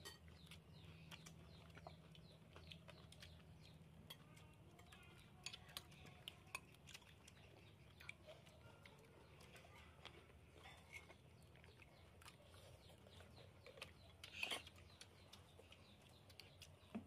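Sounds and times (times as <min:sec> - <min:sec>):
spoons clinking on plates: 0:00.0 - 0:00.4.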